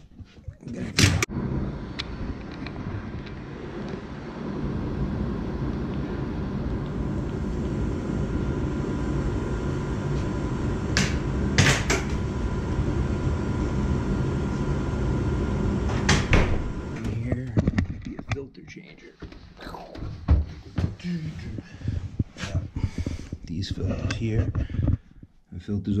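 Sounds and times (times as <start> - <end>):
faint hum: 0.0 - 26.0
machinery low rumble: 0.7 - 17.6.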